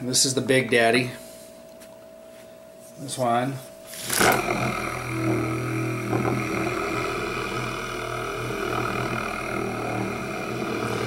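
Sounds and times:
spinning top humming: 0:03.9 - 0:11.0.

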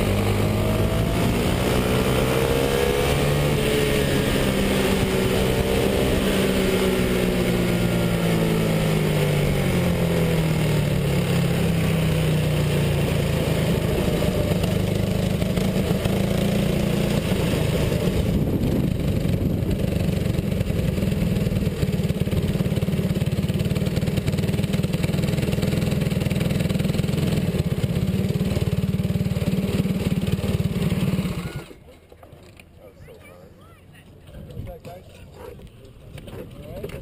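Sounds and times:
go-kart engine idling roughly: 0:04.1 - 0:32.8.

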